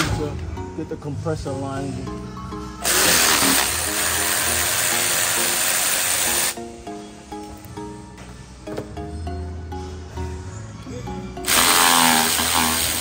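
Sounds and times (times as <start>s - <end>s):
background music: 0.0s - 13.0s
electric ratchet running: 2.8s - 6.6s, 11.4s - 13.0s.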